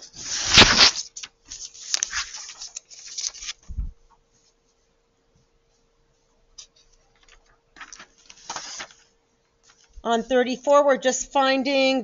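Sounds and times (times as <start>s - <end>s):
paper pages rustling: 0.1s - 3.7s, 6.6s - 10.0s.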